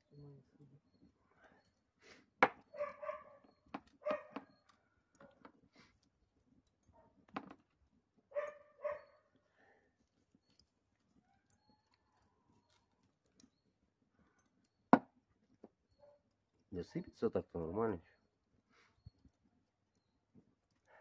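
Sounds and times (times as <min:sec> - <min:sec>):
dog barking: 0:02.7 - 0:03.4, 0:04.0 - 0:04.5, 0:08.3 - 0:09.3.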